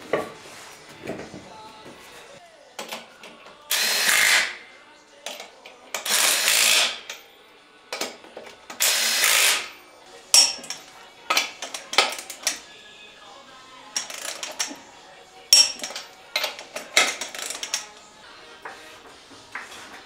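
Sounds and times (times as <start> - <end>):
impact wrench bursts: 3.7 - 4.7, 5.3 - 7.3, 8.0 - 12.6, 13.9 - 14.9, 15.5 - 18.0.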